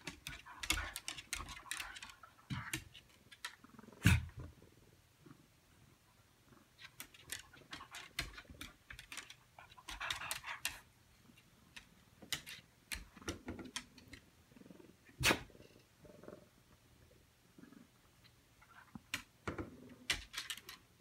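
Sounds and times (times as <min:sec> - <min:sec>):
dog claws clicking on tile: 0:00.0 - 0:04.2, 0:06.8 - 0:14.3, 0:18.7 - 0:20.9.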